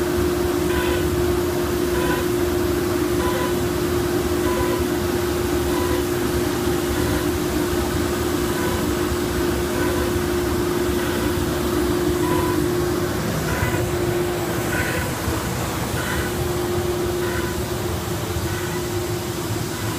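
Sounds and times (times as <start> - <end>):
high whines: 0.0 - 19.9
router spindle hum: 0.0 - 19.9.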